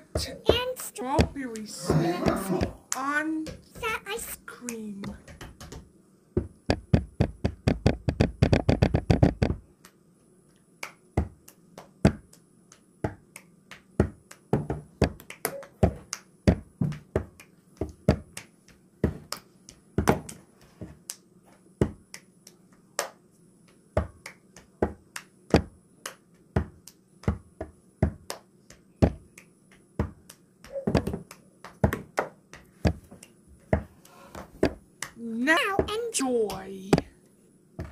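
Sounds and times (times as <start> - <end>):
sharp irregular clicks and taps: 4.7 - 5.8, 6.7 - 10.0.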